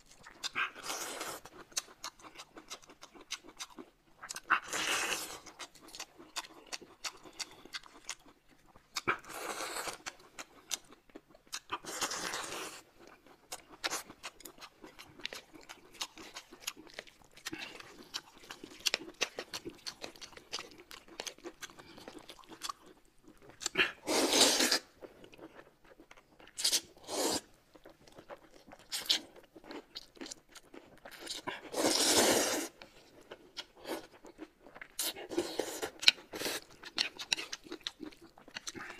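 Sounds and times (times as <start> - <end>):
chewing and lip smacks: 0.0 - 12.2, 13.0 - 24.0, 27.7 - 31.7, 32.8 - 38.9
slurping noodles: 23.8 - 24.9, 27.0 - 27.5, 31.6 - 32.8.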